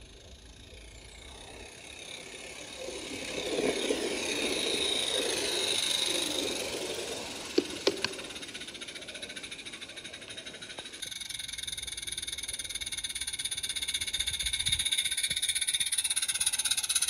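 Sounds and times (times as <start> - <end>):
miniature steam train running: 0.0 - 17.0
sharp clicks: 7.5 - 8.4.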